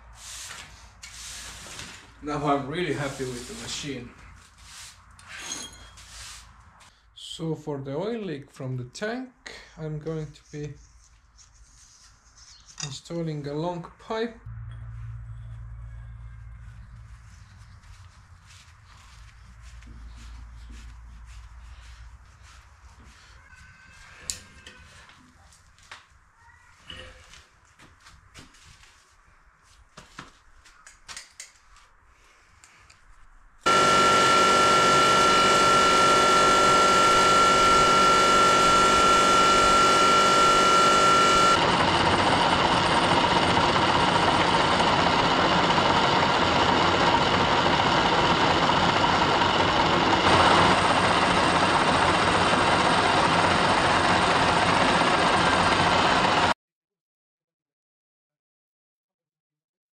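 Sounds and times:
metal lathe running: 33.7s - 56.5s.

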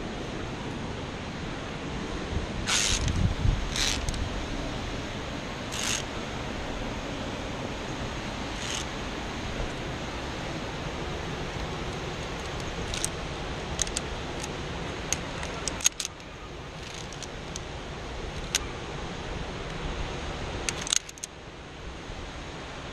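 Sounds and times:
steady rush of noise: 0.0s - 22.9s
carabiners clinking: 2.7s - 4.2s, 5.7s - 6.1s, 8.5s - 8.9s, 11.9s - 13.1s, 13.7s - 14.5s, 15.1s - 16.2s, 16.8s - 17.6s, 18.4s - 18.6s, 20.7s - 21.3s.

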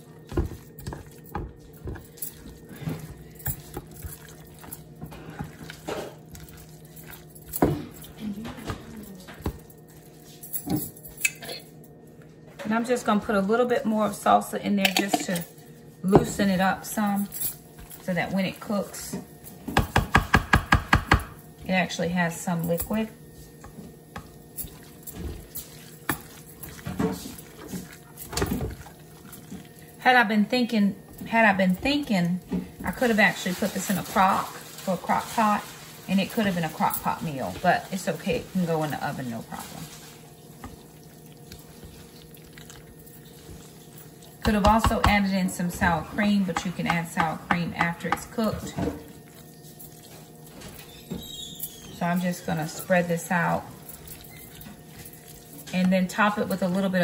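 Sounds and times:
wet squishing: 0.0s - 10.3s, 23.4s - 30.5s, 31.1s - 45.2s, 49.0s - 57.0s.

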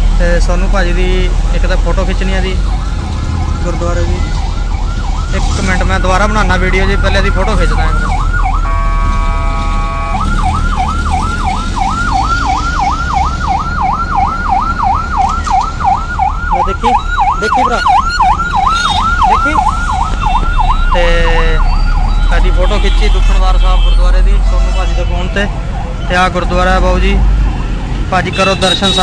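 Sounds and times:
electronic siren yelping: 1.9s - 22.5s
vehicle horn blaring: 8.6s - 10.3s, 18.7s - 19.2s, 28.3s - 29.0s.

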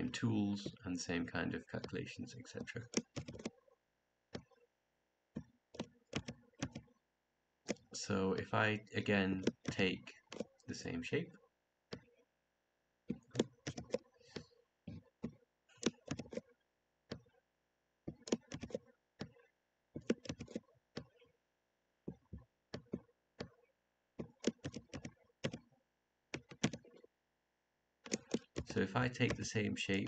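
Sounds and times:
computer mouse clicks: 2.6s - 3.7s, 4.3s - 4.6s, 5.4s - 7.0s, 9.4s - 10.6s, 13.1s - 17.4s, 18.1s - 21.4s, 22.1s - 25.7s, 26.3s - 27.1s, 28.0s - 29.4s.

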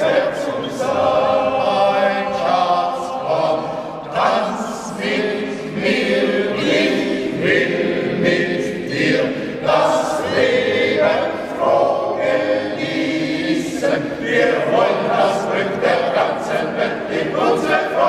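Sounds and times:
men's choir singing a cappella: 0.0s - 18.0s.

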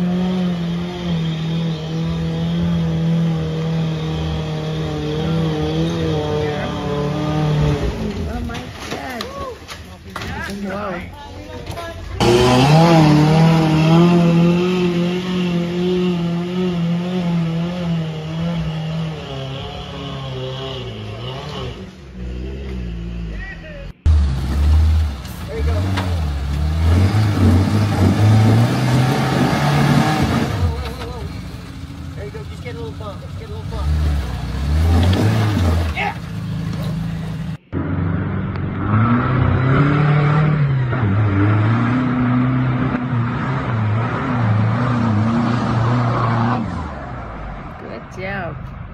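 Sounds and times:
suv engine revving: 0.0s - 8.6s, 12.2s - 23.4s, 24.0s - 47.8s
voices: 30.5s - 37.6s.

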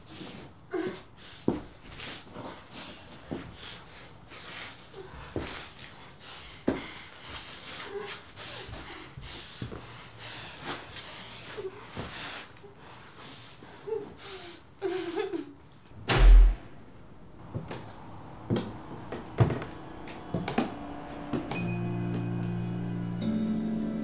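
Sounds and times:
woman breathing heavily: 0.0s - 15.5s
heavy slam with deep thump: 16.0s - 16.8s.

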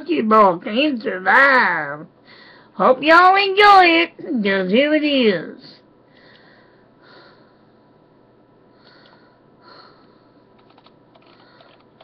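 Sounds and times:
light computer clicks: 10.6s - 12.0s.

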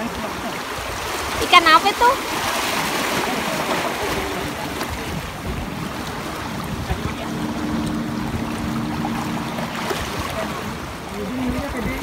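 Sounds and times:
waves washing around rocks: 0.0s - 12.0s
wind buffeting microphone: 4.0s - 12.0s
low two-tone hum: 5.6s - 11.1s.

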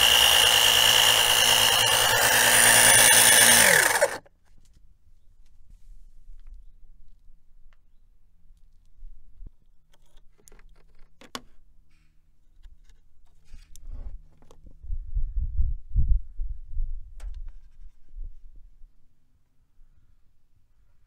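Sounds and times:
electric pump humming: 0.0s - 4.2s.

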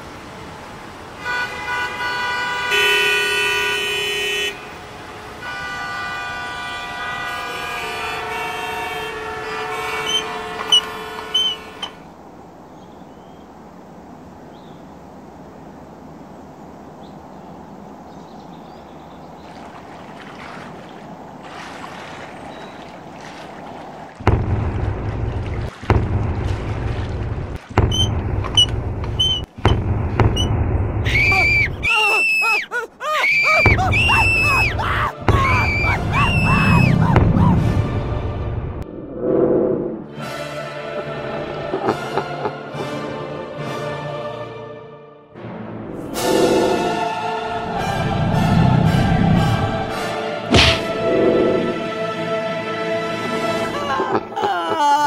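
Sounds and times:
car horns honking: 1.2s - 12.1s
loud low rumble: 24.2s - 29.2s, 35.2s - 40.2s, 46.0s - 51.9s.

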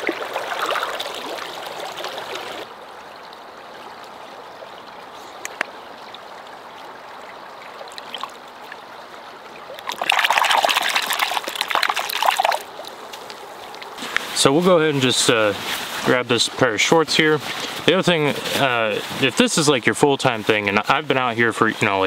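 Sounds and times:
hand splashing water in bucket: 9.8s - 12.6s
water gurgling into bucket: 9.8s - 12.7s.

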